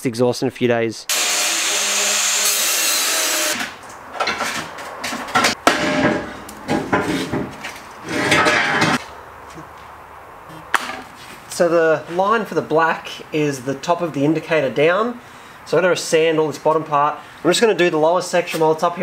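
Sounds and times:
angle grinder cutting metal: 0:01.1 - 0:03.8.

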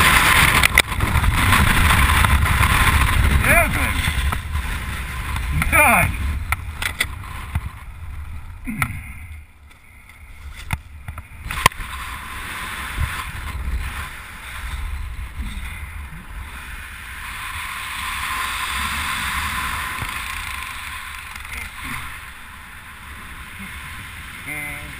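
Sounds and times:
wind buffeting microphone: 0:00.0 - 0:09.5.

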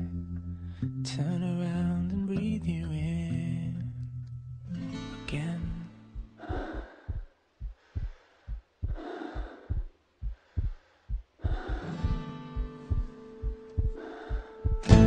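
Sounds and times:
heartbeat thumps: 0:05.6 - 0:15.0
slow breaths: 0:06.2 - 0:14.8.

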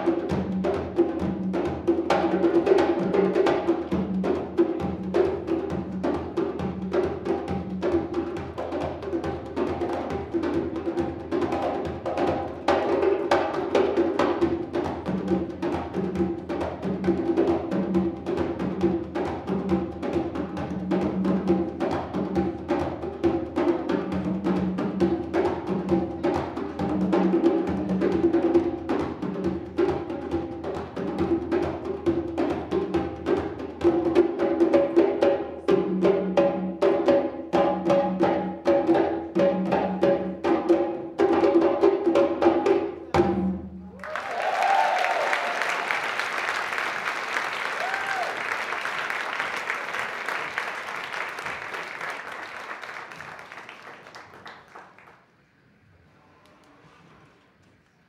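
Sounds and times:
hand drumming on congas and djembe: 0:00.0 - 0:43.8.

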